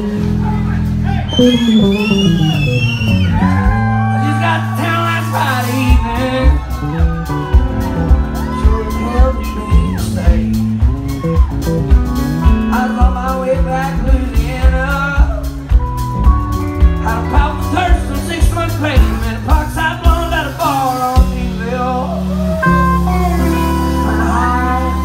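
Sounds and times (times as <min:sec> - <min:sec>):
drum kit beat: 0:00.0 - 0:25.0
electric bass: 0:00.0 - 0:25.0
man singing lead: 0:03.4 - 0:11.4, 0:12.4 - 0:15.6, 0:17.0 - 0:25.0.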